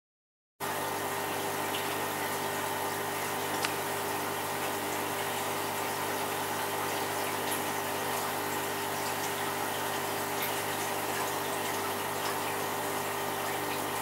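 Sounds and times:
aquarium pump hum: 0.6 - 14.0.

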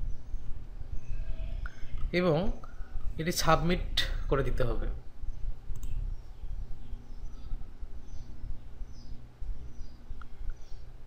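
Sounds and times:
faint bird chirps: 0.0 - 3.0, 5.1 - 11.0
low room hum: 0.0 - 11.0
mouse click: 5.7 - 6.0.

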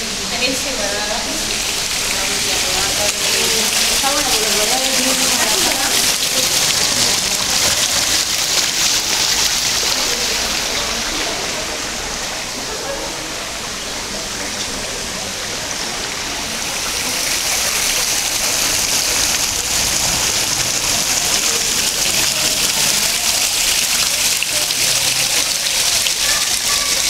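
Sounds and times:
fountain water splashing into basin: 0.0 - 27.0.

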